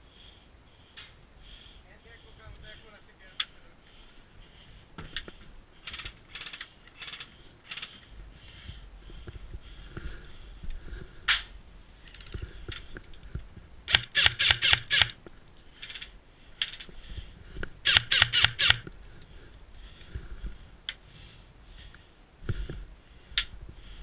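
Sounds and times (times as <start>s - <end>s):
airsoft gun firing: 13.9s - 15.2s, 17.9s - 18.8s.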